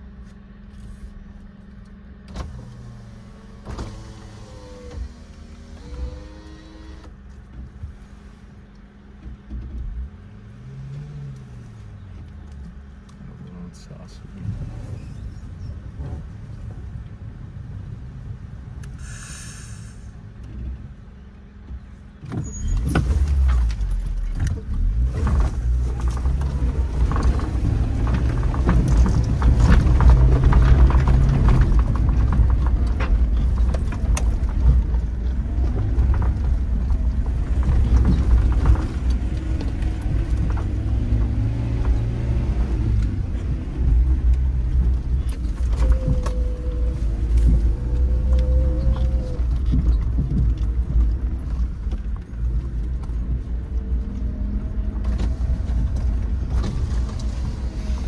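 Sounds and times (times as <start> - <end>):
car engine pulling under load: 0.7 - 58.0
knocks and rattles of car body: 21.6 - 53.9.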